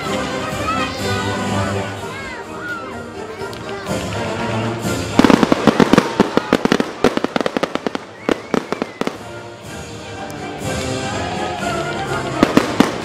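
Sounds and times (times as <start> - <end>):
fireworks bangs and cracks: 4.9 - 9.8, 12.2 - 13.0.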